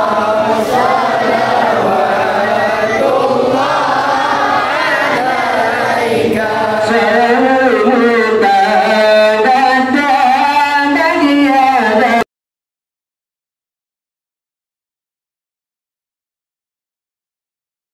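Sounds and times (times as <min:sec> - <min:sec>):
group chanting: 0:00.0 - 0:12.3.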